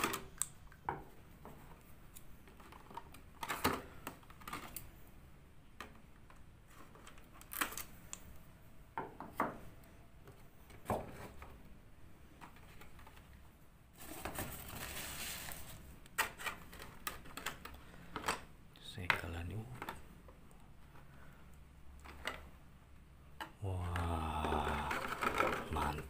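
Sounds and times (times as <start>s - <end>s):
plastic crackling: 23.7s - 26.0s.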